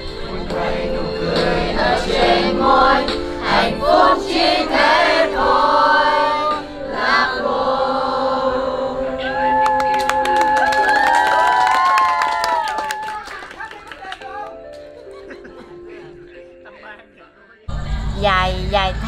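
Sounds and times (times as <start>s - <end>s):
voices singing together: 0.0s - 10.2s.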